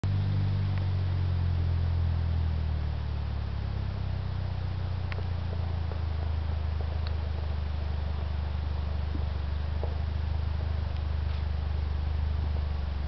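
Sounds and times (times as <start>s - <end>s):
engine running at low revs: 0.0s - 13.0s
faint ticks: 5.0s - 11.9s.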